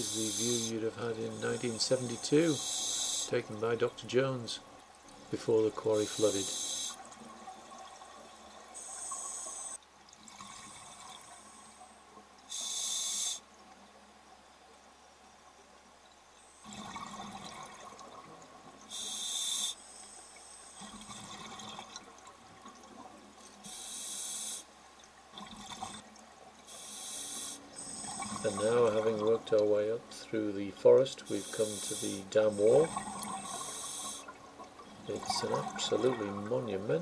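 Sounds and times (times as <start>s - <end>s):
regulator hiss: 0.0s - 3.8s, 5.8s - 7.0s, 8.8s - 9.8s, 12.5s - 13.5s, 18.9s - 20.8s, 23.6s - 24.7s, 26.7s - 29.2s, 31.2s - 34.3s
gurgling exhaled bubbles: 31.4s - 37.0s.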